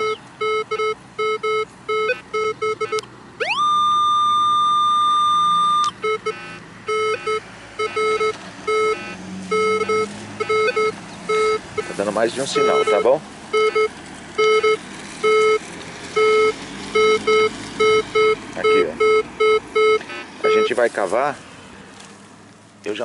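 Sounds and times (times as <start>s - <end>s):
metal detector short low beeps: 0.0s - 12.0s, 12.6s - 15.6s, 16.2s - 20.7s
metal detector rising high tone: 0.0s - 15.6s.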